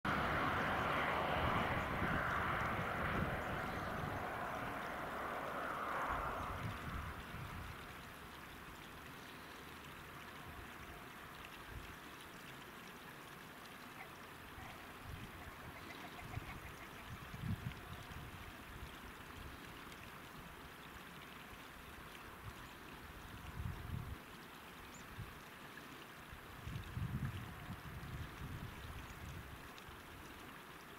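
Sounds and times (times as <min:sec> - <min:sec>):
wind on microphone: 0:00.1 - 0:05.1, 0:06.0 - 0:07.8, 0:16.2 - 0:18.4, 0:23.4 - 0:24.2, 0:26.6 - 0:29.6.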